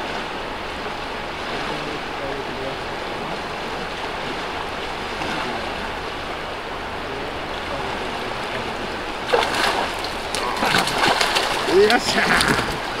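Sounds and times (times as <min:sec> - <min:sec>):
river current rushing: 0:00.0 - 0:13.0
loud splash in water: 0:09.2 - 0:13.0.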